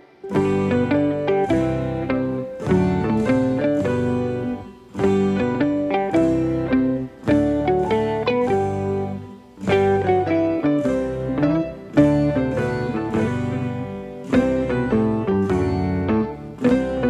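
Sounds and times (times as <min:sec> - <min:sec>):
plucked guitar tune: 0:00.0 - 0:17.0.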